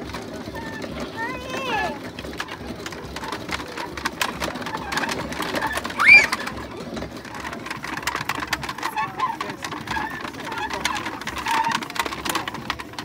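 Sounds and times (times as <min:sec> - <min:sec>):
wooden treadmill clattering: 0:00.0 - 0:13.0
short loud cry: 0:06.0 - 0:06.4.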